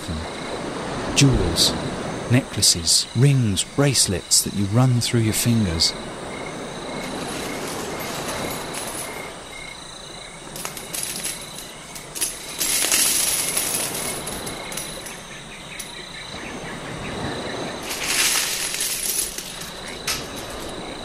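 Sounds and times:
crickets chirping: 0:00.0 - 0:21.0
coins and jewellery jingling: 0:07.0 - 0:09.4, 0:10.5 - 0:16.0, 0:17.8 - 0:21.0
surf: 0:16.3 - 0:21.0.

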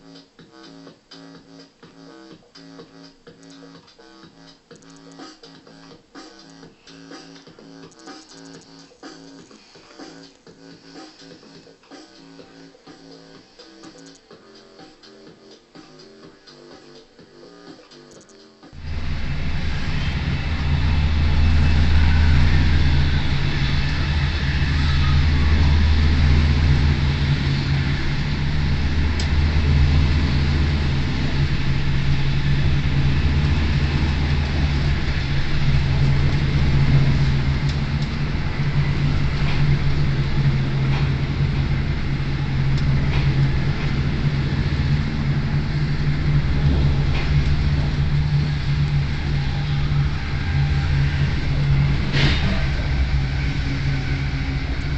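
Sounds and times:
train carriage rumbling: 0:18.7 - 0:54.9.

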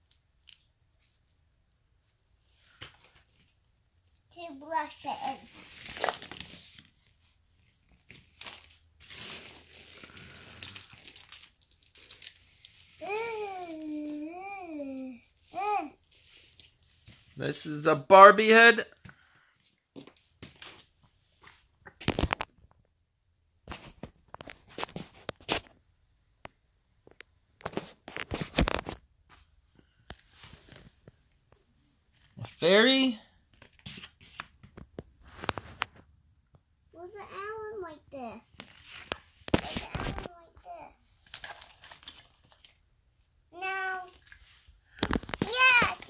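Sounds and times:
rustling of plastic toys: 0:00.0 - 0:17.4, 0:19.6 - 0:22.8, 0:23.7 - 0:25.8, 0:27.0 - 0:36.6, 0:37.3 - 0:42.9, 0:43.6 - 0:46.0
plastic toys rustling and clicking: 0:05.0 - 0:07.0, 0:07.8 - 0:14.2, 0:44.0 - 0:46.0.

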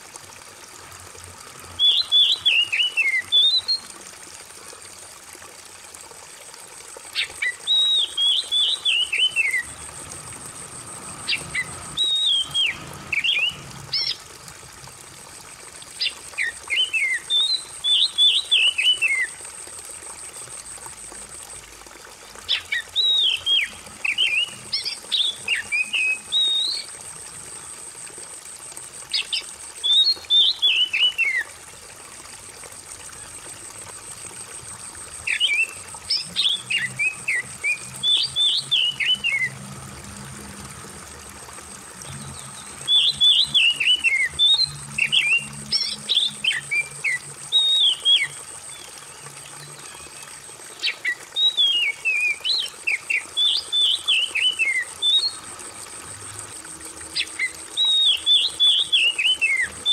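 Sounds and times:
trickling water: 0:00.0 - 0:59.9
songbird whistling phrases: 0:07.2 - 0:09.7, 0:11.6 - 0:14.1, 0:25.2 - 0:26.9, 0:42.9 - 0:48.4, 0:50.8 - 0:55.4.

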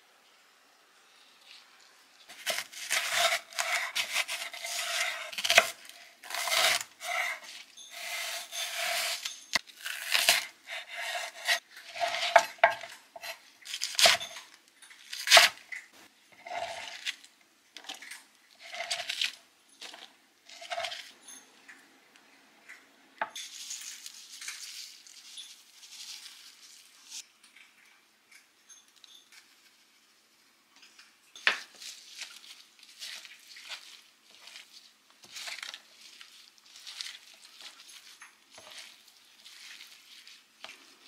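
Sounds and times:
knife slicing on wooden board: 0:02.3 - 0:14.3.

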